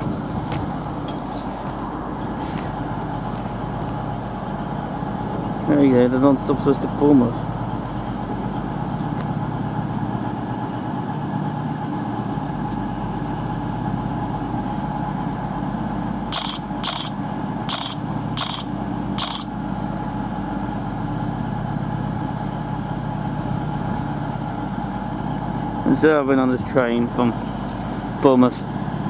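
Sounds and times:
diesel train engines idling: 0:00.0 - 0:29.0
short high-pitched beeps: 0:16.4 - 0:19.5.

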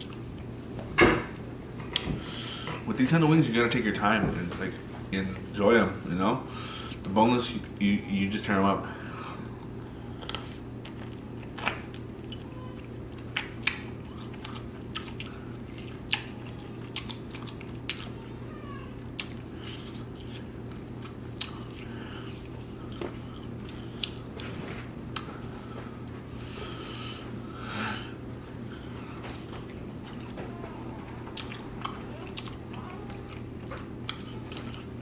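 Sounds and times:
person chewing: 0:00.0 - 0:00.5, 0:09.4 - 0:18.2, 0:19.0 - 0:35.0
wet mouth clicks and smacks: 0:13.3 - 0:18.0.

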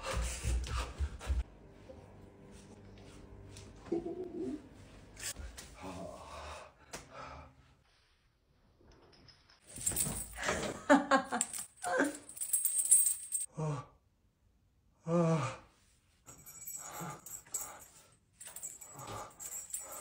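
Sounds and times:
metal chains clinking: 0:08.9 - 0:13.5, 0:16.3 - 0:20.0.

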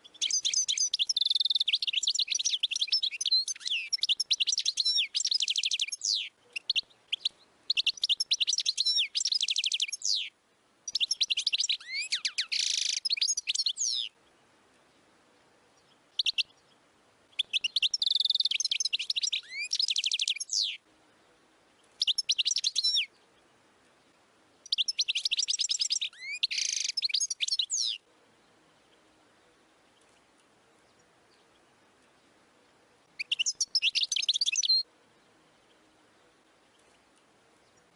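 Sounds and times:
finch twittering song: 0:00.0 - 0:15.0, 0:15.7 - 0:20.8, 0:21.8 - 0:29.0, 0:33.0 - 0:35.8.

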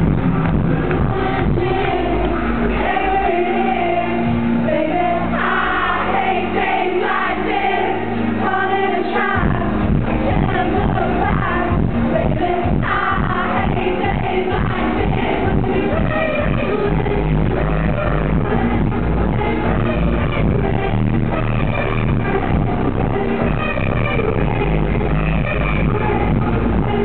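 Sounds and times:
pounding kick drum beat: 0:00.0 - 0:02.1, 0:09.4 - 0:27.0
live band playing dance-pop: 0:00.0 - 0:27.0.

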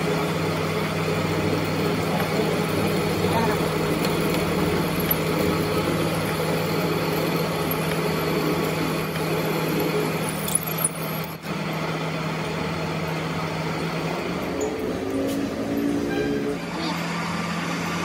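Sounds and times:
drill boring into metal: 0:00.0 - 0:11.4
metal lathe motor hum: 0:00.0 - 0:18.0.

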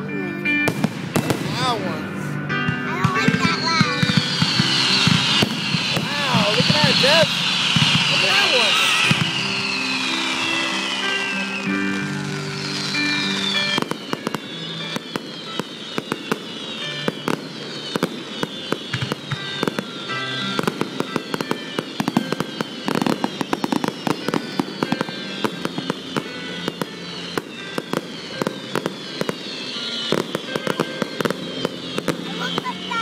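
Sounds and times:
fireworks bangs and crackles: 0:00.5 - 0:33.0
falling firework whistles: 0:03.2 - 0:33.0.

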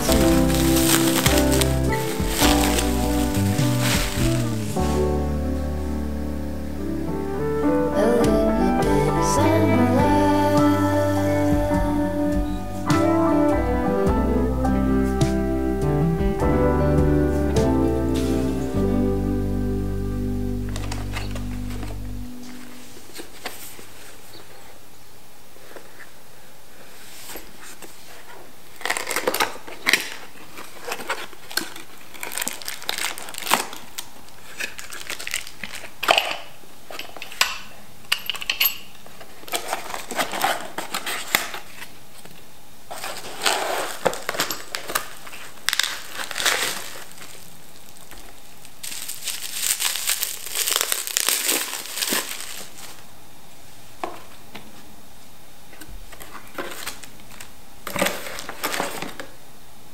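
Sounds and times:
cardboard and plastic rustling: 0:00.0 - 0:05.4, 0:20.6 - 0:24.8, 0:26.8 - 0:53.1, 0:55.7 - 0:59.4.

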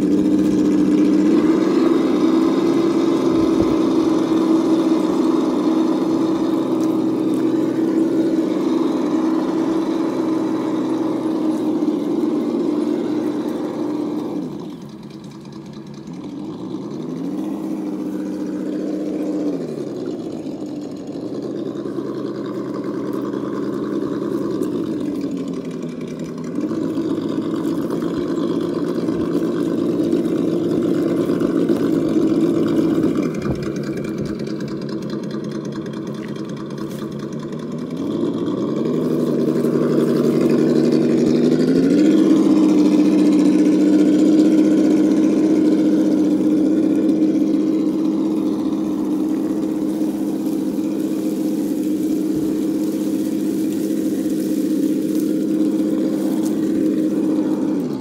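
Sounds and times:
toy car electric motor whining: 0:36.0 - 0:58.0.

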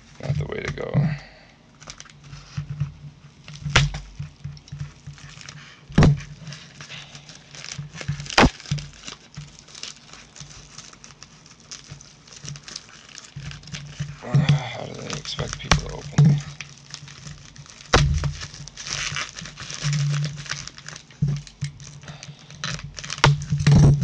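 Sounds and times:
bubble mailer crinkling and tearing: 0:01.8 - 0:24.0
sharp knocks: 0:03.7 - 0:04.2, 0:17.9 - 0:18.4.

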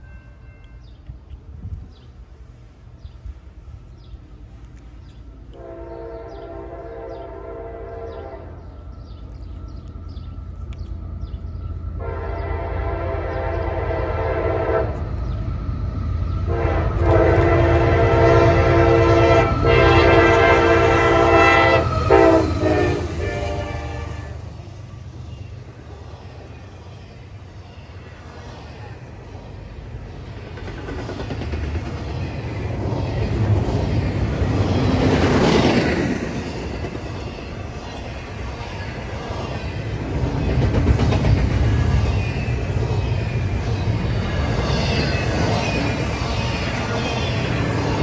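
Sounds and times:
train engines and wheels rumbling: 0:00.0 - 0:48.0
locomotive air horn blasts: 0:05.5 - 0:08.6, 0:12.0 - 0:15.1, 0:16.5 - 0:24.5.

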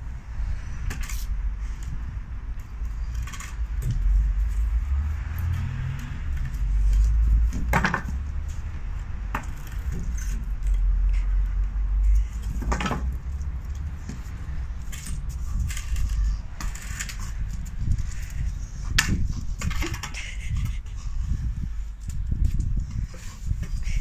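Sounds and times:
steady low rumble: 0:00.0 - 0:24.0
branch knocking and scraping on wall: 0:05.3 - 0:08.3, 0:12.4 - 0:17.6.

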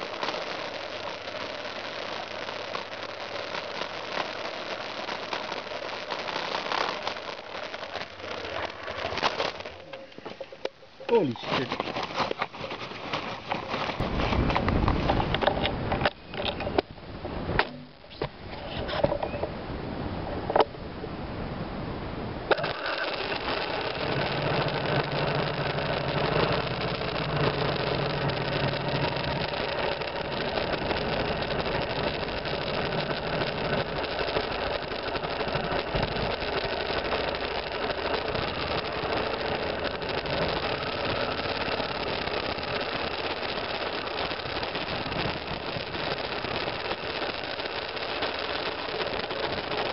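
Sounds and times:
motorcycle engine running: 0:22.6 - 0:49.9.

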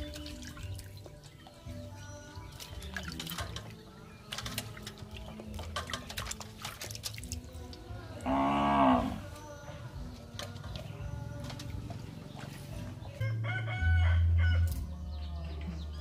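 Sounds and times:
water splashing in a metal basin: 0:00.0 - 0:08.3.

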